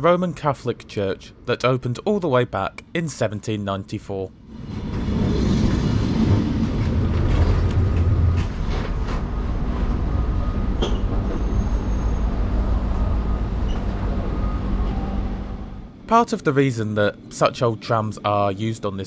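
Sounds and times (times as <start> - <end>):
tram rumbling on rails: 4.4 - 18.6.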